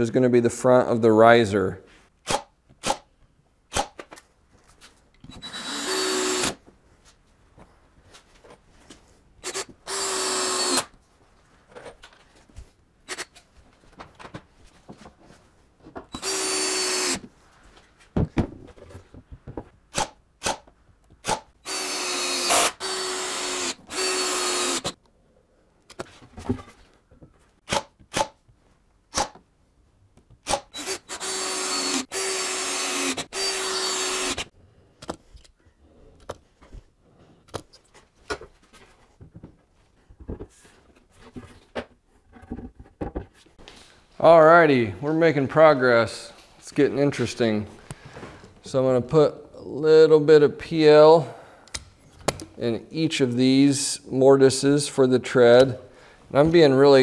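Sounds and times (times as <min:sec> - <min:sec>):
cordless drill driving screws: 0:05.3 - 0:06.6, 0:09.4 - 0:11.0, 0:16.1 - 0:17.2, 0:21.2 - 0:25.0, 0:30.4 - 0:34.5.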